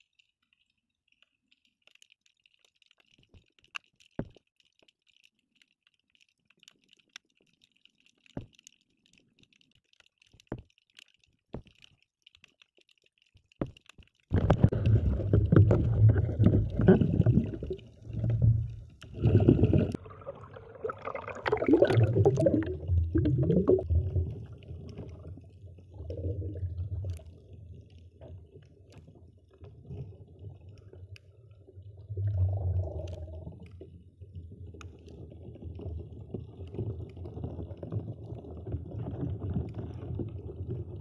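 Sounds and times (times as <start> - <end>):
faint clicks: 0.0 - 14.4
water sloshing and gurgling: 0.0 - 41.0.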